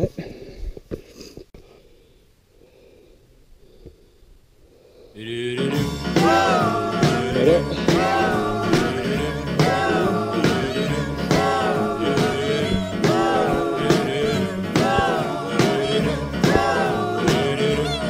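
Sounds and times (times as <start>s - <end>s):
upbeat rock and roll song: 5.4s - 18.0s.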